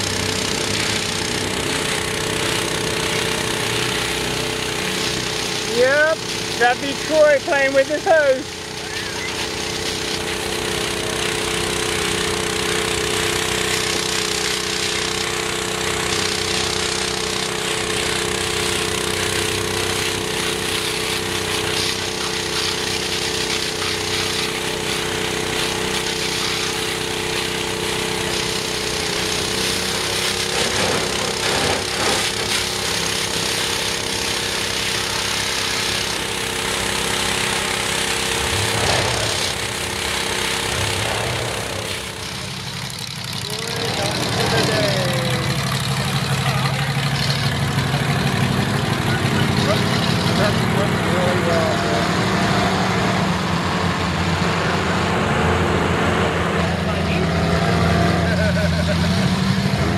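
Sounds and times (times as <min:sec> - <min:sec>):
pressure washer spray hissing: 0:00.0 - 0:53.4.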